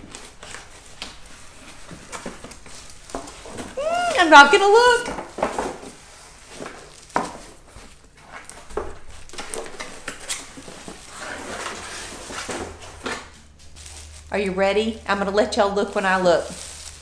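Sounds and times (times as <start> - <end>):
plastic crinkling: 13.6 - 14.5, 15.8 - 17.0.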